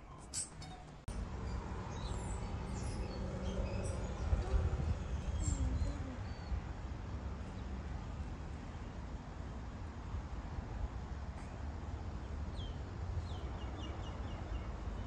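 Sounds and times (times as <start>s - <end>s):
wind on microphone: 3.4s - 6.8s.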